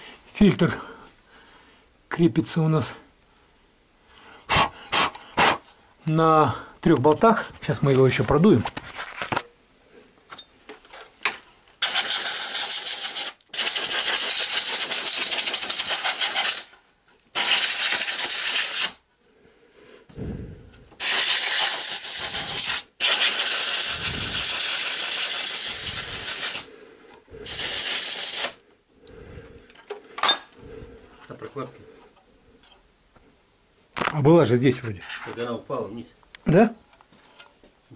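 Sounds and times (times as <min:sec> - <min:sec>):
compressed air blow gun hissing: 0:11.8 - 0:16.7, 0:17.3 - 0:19.0, 0:21.0 - 0:26.7, 0:27.4 - 0:28.6.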